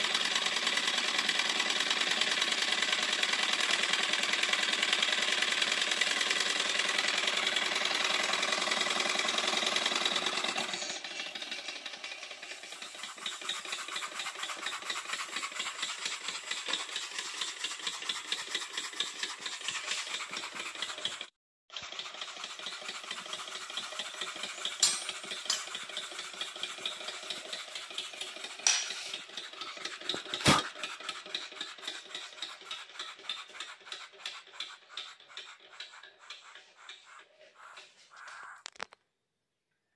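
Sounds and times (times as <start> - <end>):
miniature steam engine clatter: 0.0 - 38.8.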